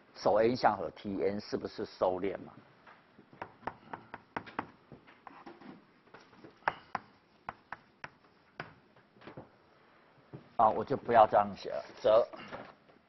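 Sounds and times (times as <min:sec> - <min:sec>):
chalk tapping and scratching: 0:03.4 - 0:09.0.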